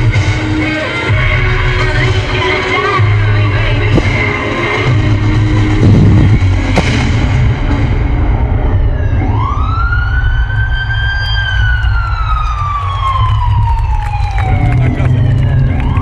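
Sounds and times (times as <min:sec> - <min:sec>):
heavy bass: 0:00.0 - 0:16.0
siren wail: 0:08.0 - 0:16.0.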